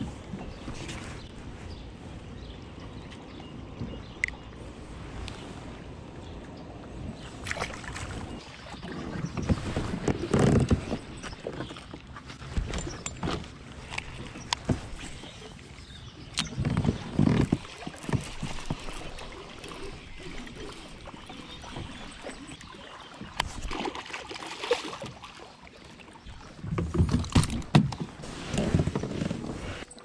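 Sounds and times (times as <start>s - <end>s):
water lapping against kayak hull: 0.0s - 30.0s
fish splashing and thumping: 7.2s - 15.5s, 16.4s - 22.4s, 23.1s - 25.6s, 26.4s - 29.6s.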